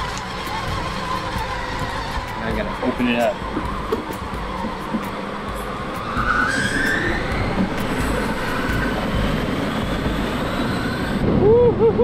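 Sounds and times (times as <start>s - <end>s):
plastic wheels rolling on wet pavement: 0.0s - 4.8s
toy car electric motor whine: 0.0s - 4.9s, 6.0s - 11.2s.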